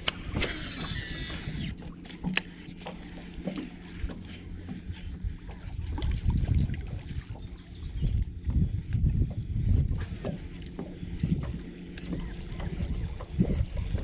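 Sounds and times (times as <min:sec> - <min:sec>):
fishing reel clicking: 0:00.0 - 0:01.8
steady low hum: 0:00.0 - 0:14.0
wind buffeting microphone: 0:03.4 - 0:14.0.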